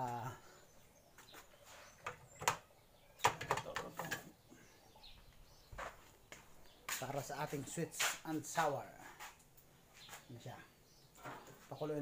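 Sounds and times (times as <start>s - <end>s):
bottles and containers knocking: 3.2s - 4.3s.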